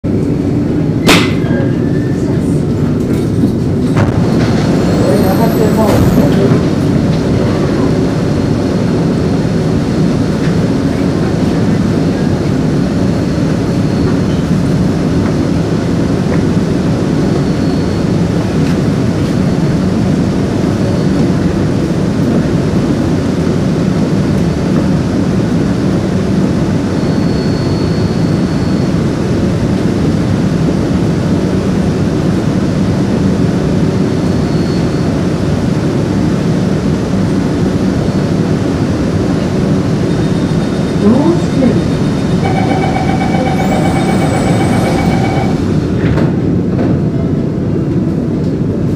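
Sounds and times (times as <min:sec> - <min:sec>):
train rumble in tunnel: 0:00.0 - 0:48.9
faint high whine: 0:41.6 - 0:45.7.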